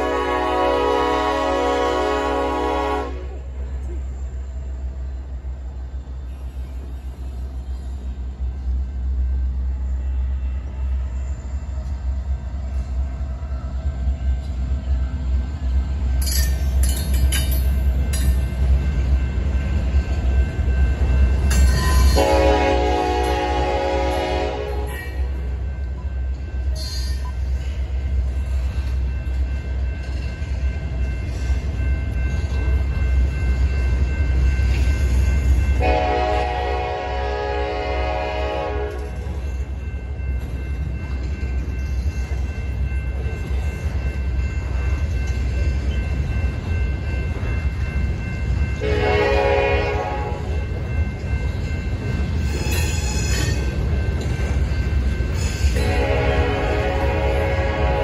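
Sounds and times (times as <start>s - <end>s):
locomotive air horn blasts: 0.0s - 3.5s, 22.1s - 25.4s, 35.8s - 39.1s, 48.8s - 50.5s, 55.7s - 58.0s.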